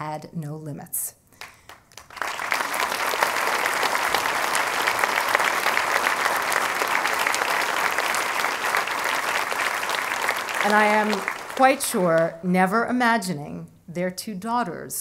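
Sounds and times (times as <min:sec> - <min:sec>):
audience applause: 0:01.6 - 0:12.4.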